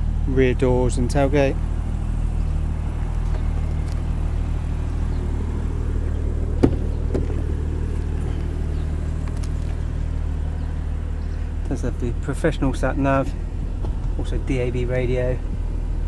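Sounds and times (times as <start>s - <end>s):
car engine idling: 0.0s - 16.0s
car door opening click: 6.6s - 7.5s.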